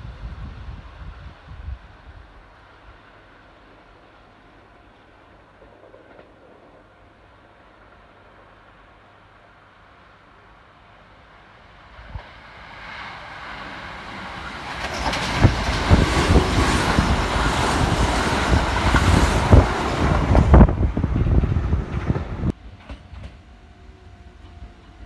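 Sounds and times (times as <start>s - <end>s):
train rumble passing: 0.0s - 25.0s
wheels clacking over rail joints: 13.6s - 23.4s.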